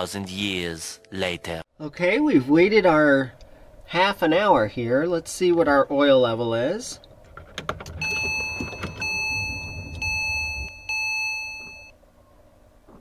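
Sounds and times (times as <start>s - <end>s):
ignition clicks: 7.0s - 11.0s
low hum: 7.0s - 12.9s
car warning chime: 7.9s - 11.9s.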